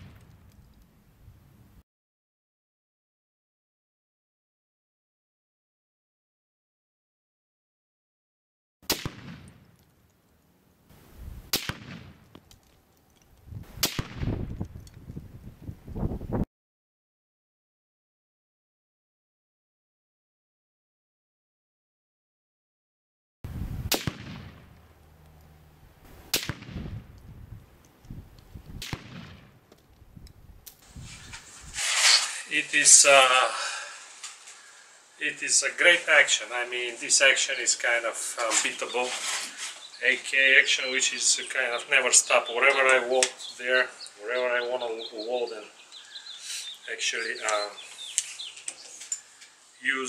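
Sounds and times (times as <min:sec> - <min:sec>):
rifle shots: 0:08.8 - 0:09.8, 0:11.5 - 0:12.3, 0:13.8 - 0:14.4, 0:23.9 - 0:24.8, 0:26.3 - 0:27.0, 0:28.8 - 0:29.6.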